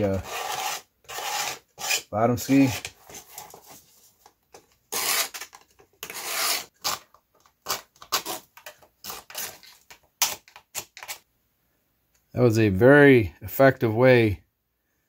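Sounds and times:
blade scraping epoxy on wood: 0:00.0 - 0:02.9.

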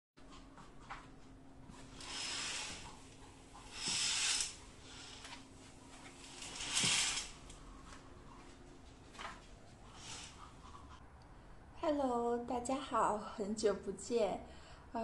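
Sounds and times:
faint steady hum: 0:00.2 - 0:15.0
curtain sliding along rail: 0:01.8 - 0:07.6, 0:09.9 - 0:10.4.

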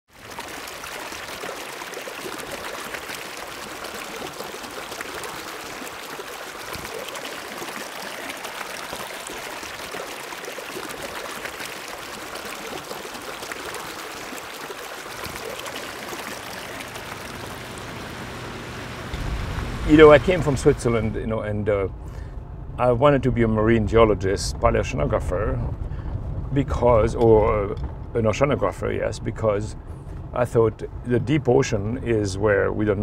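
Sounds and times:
river water trickling: 0:00.1 - 0:22.3
truck engine hum: 0:15.1 - 0:24.8.

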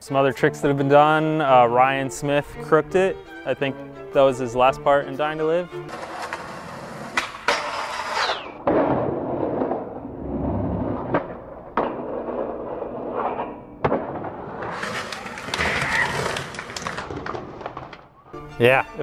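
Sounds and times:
skateboard wheels rolling on concrete: 0:00.2 - 0:18.3
skateboard grinding on metal rail: 0:05.8 - 0:18.0
skateboard clacking on rail: 0:05.9 - 0:08.4, 0:11.1 - 0:18.1.

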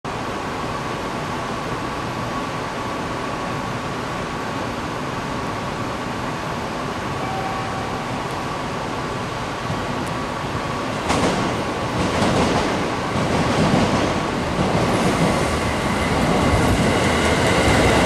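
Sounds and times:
electric train running slowly: 0:00.1 - 0:18.0
short lower tone: 0:07.2 - 0:08.6
thin high tone: 0:07.2 - 0:08.8.

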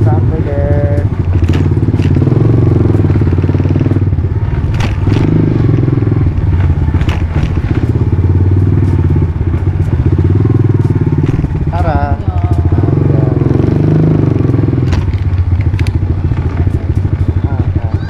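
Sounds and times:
motorcycle engine throbbing: 0:00.0 - 0:18.0.

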